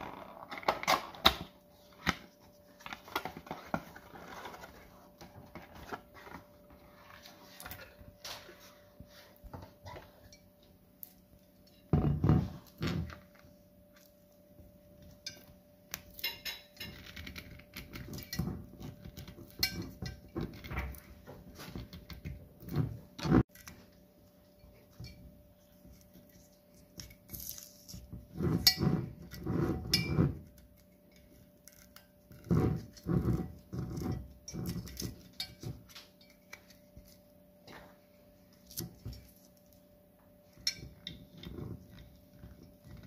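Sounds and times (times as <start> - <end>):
scraping and rustling paper: 2.4 - 9.4.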